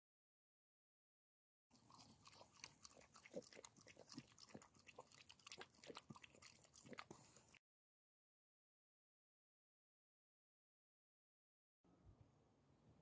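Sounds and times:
dog lapping water: 0:01.8 - 0:07.6.

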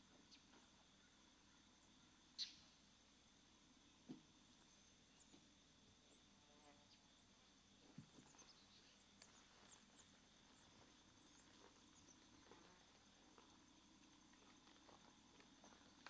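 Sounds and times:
insect drone: 0:00.0 - 0:16.0
bird chirps: 0:02.4 - 0:02.7.

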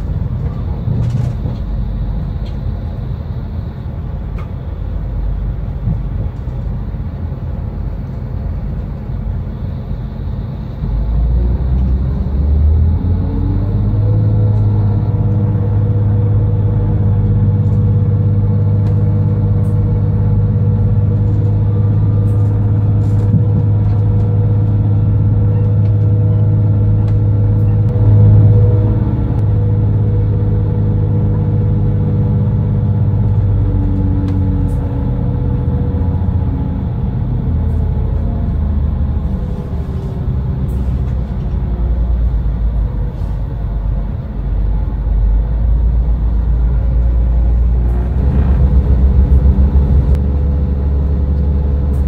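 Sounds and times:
running gear rumble: 0:00.0 - 0:52.0
train engine drone: 0:00.0 - 0:52.0.

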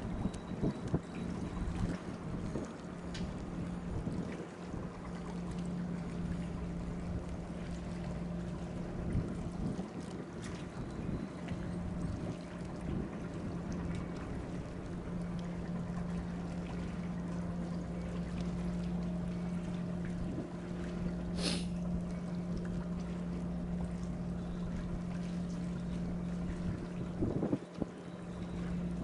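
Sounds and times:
boat engine idling: 0:00.0 - 0:29.0
brief hiss: 0:21.4 - 0:21.7.

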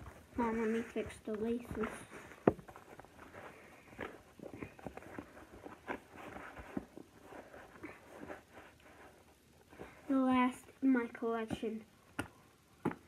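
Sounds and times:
sneaker and laces rustling: 0:00.0 - 0:10.5.

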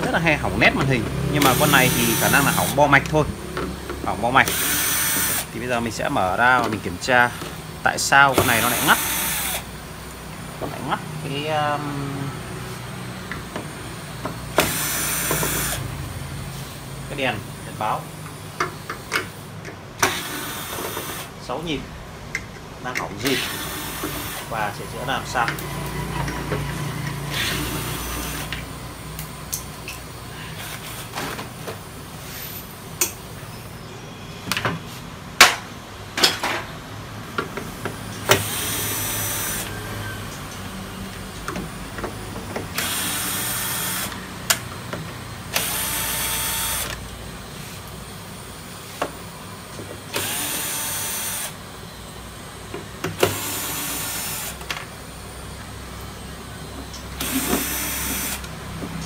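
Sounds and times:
cordless drill backing out screws: 0:57.2 - 0:58.5.

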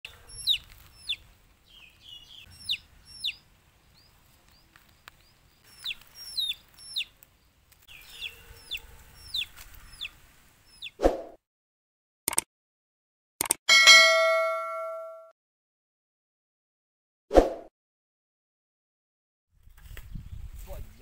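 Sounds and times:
bird chirping: 0:00.1 - 0:11.0.

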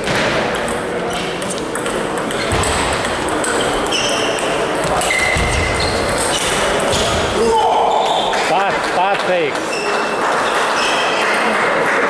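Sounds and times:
ball bouncing on table: 0:00.0 - 0:03.9
background chatter: 0:00.0 - 0:12.0
ping pong ball on paddles: 0:00.1 - 0:07.1.

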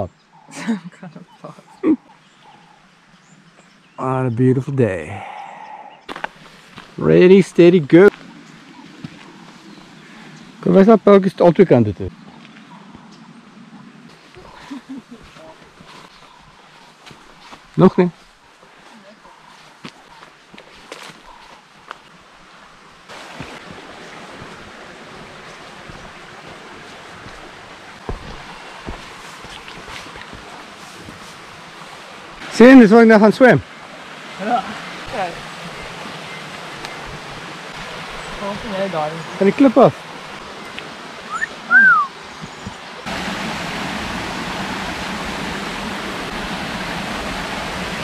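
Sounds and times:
water rushing in stream: 0:04.9 - 0:48.0
rushing wind: 0:40.0 - 0:48.0
whistled note: 0:41.3 - 0:42.1.

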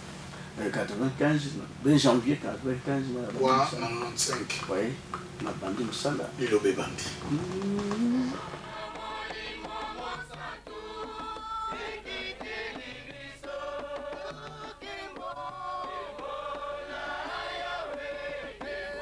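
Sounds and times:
drum beats: 0:07.3 - 0:19.0
group singing in chorus: 0:07.9 - 0:19.0.

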